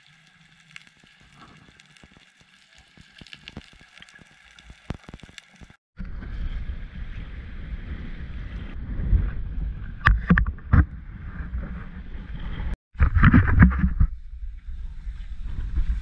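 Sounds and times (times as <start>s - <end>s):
wind on the microphone: 6.0s - 16.0s.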